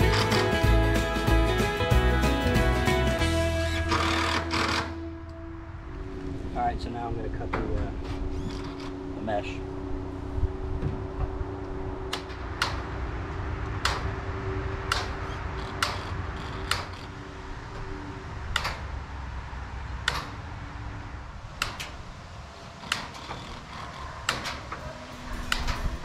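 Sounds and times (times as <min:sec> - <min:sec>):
steady low hum: 0:04.8 - 0:15.6
sharp metallic clicks: 0:13.7 - 0:14.2.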